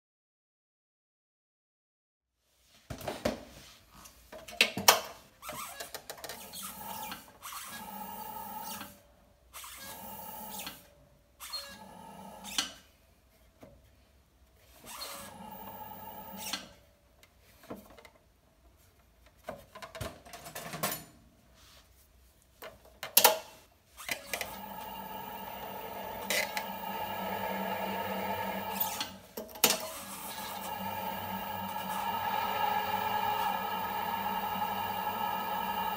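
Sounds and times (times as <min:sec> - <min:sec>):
potter's wheel hum: 0:15.3 - 0:16.4, 0:24.3 - 0:29.3, 0:30.0 - 0:35.9.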